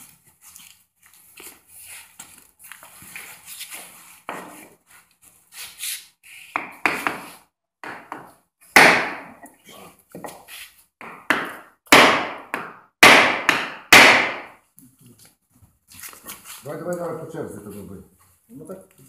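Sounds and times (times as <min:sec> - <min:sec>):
hammer knocking on wood: 0:06.6 - 0:09.3, 0:11.0 - 0:14.6.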